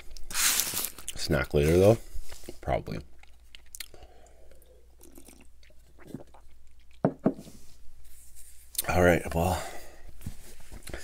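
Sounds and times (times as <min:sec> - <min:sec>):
person chewing and swallowing: 0:02.3 - 0:07.0.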